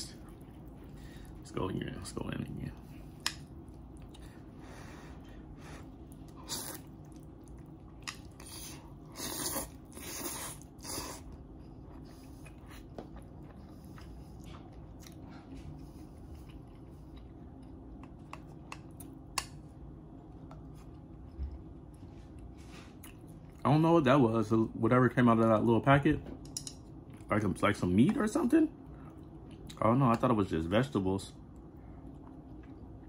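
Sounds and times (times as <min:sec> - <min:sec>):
person chewing: 0:03.0 - 0:04.5, 0:05.8 - 0:19.5, 0:31.5 - 0:33.0
person slurping noodles: 0:06.4 - 0:06.9, 0:08.4 - 0:11.3.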